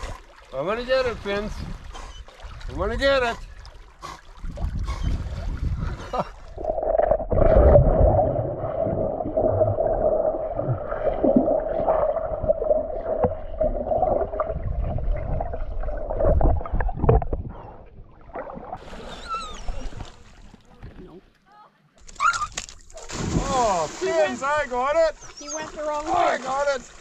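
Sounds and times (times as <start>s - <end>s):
underwater gurgling and sloshing: 0.0s - 21.0s
water splashing: 0.0s - 21.2s, 22.0s - 27.0s.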